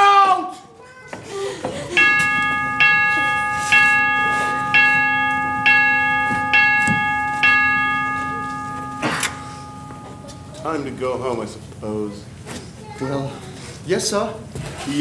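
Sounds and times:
clock bell striking: 2.0 - 11.2.

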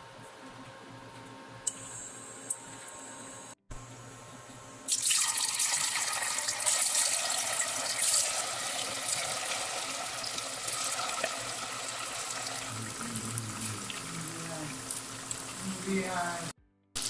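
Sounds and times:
tofu sizzling in hot oil: 4.9 - 12.7, 13.8 - 16.3.

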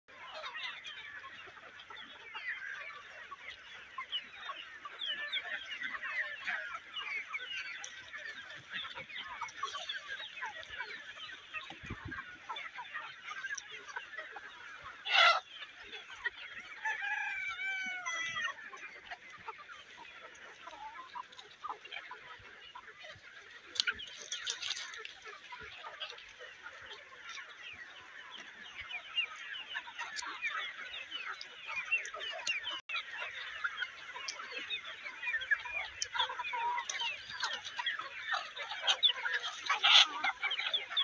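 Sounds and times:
chickens calling: 0.1 - 41.0
rooster crowing: 16.8 - 18.4.

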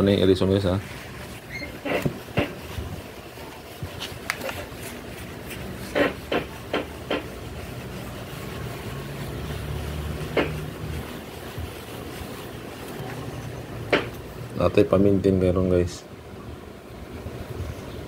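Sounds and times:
hand tapping and knocking: 5.9 - 7.3, 10.3 - 10.6.

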